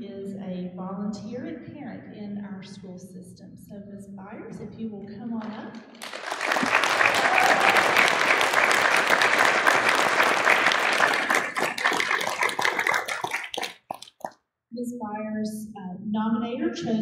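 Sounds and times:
audience applauding: 6.0 - 14.3.

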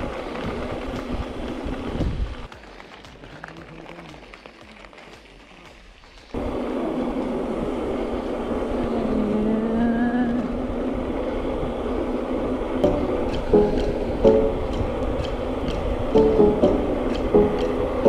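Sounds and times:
wind rushing over microphone: 0.0 - 2.5, 6.4 - 18.0
tyres rolling on asphalt: 0.0 - 18.0.

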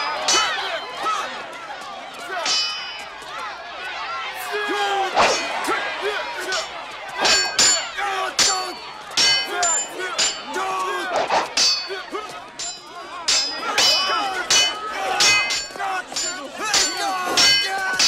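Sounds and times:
swords clashing: 0.0 - 1.2, 2.4 - 3.3, 5.2 - 5.8, 6.4 - 18.0
shouts and grunts: 0.0 - 18.0.

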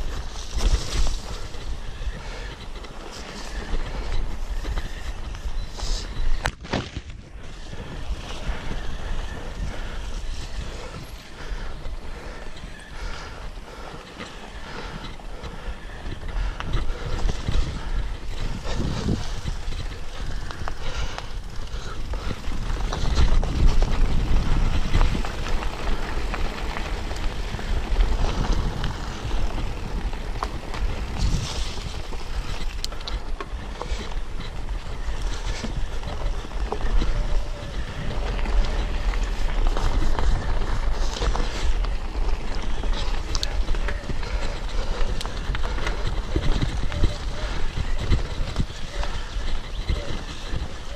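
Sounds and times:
bike rattling over bumps: 0.0 - 50.9
bike tyres on dirt trail: 0.0 - 50.9
wind on microphone: 0.0 - 50.9.

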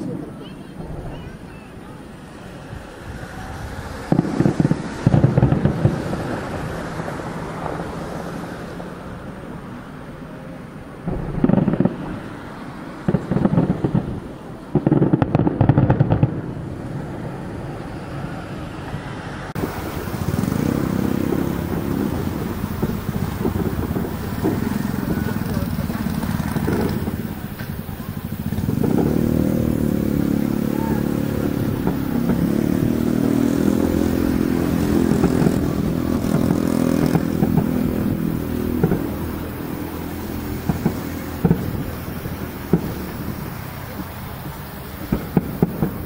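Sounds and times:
wind noise on microphone: 0.0 - 9.8, 10.9 - 17.8, 19.0 - 46.0
firework crackling: 0.0 - 46.0
distant firework booms: 3.8 - 6.6, 11.0 - 16.6, 19.6 - 46.0.

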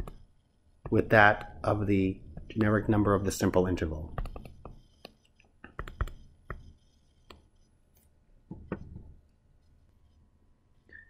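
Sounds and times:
stylus tapping on a tablet: 4.2 - 6.7, 8.5 - 9.1.

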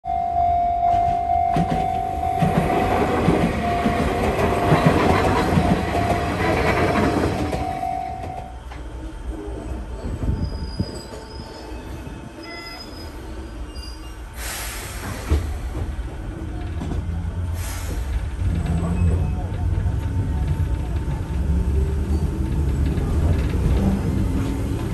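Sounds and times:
level-crossing warning bell: 0.0 - 8.6
train interior hum: 0.1 - 24.9
electric train passing: 1.4 - 10.2.

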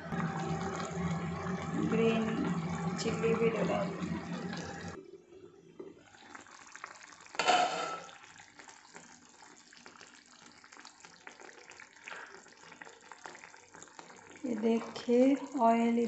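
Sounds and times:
curry bubbling and popping: 6.0 - 15.9.

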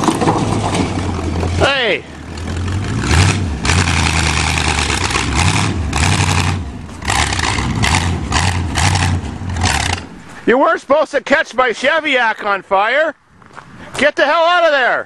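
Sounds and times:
car engine revving hard: 2.4 - 10.1.

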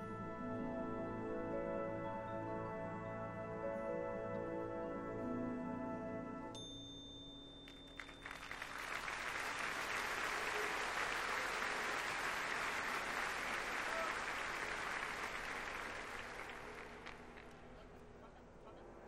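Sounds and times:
stadium crowd applauding: 7.6 - 17.7.

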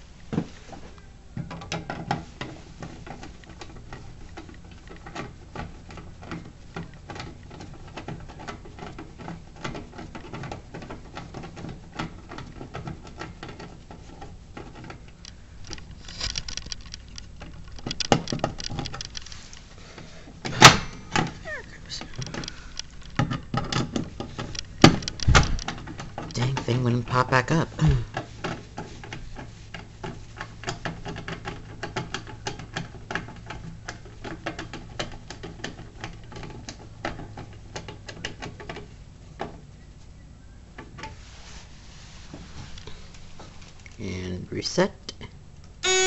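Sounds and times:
key clicking and scraping in lock: 14.6 - 19.6, 21.2 - 26.6.

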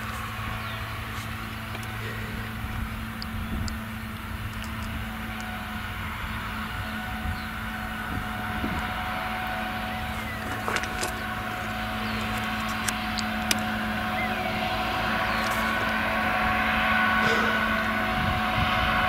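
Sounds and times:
harvester engine drone: 0.0 - 19.0
tractor hauling trailer: 0.0 - 19.0
sharp ticks: 3.1 - 5.5.

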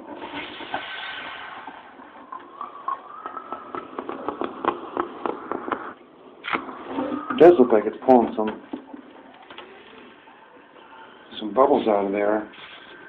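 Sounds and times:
hiss: 0.0 - 1.9
plastic bottle creaking and crackling: 2.0 - 7.5.

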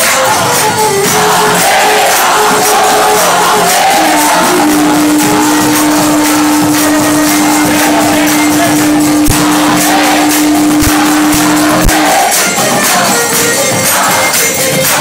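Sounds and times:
hand cymbals rhythm: 0.0 - 15.0
long held note: 2.2 - 12.9.

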